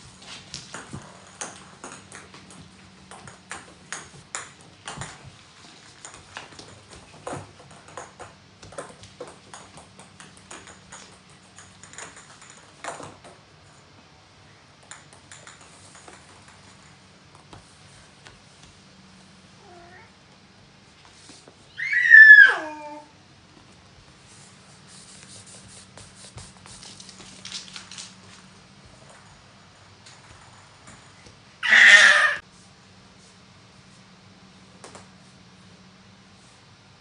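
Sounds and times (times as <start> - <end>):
ball clicking on wooden floor: 6.0 - 13.4, 14.8 - 17.6.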